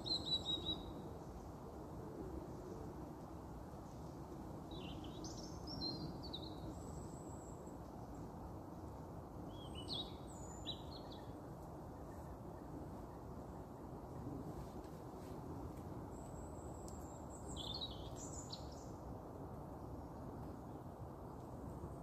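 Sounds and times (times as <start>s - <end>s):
songbird chirping: 0.0s - 1.0s, 9.5s - 14.0s, 15.8s - 19.0s
low background hiss: 0.0s - 22.0s.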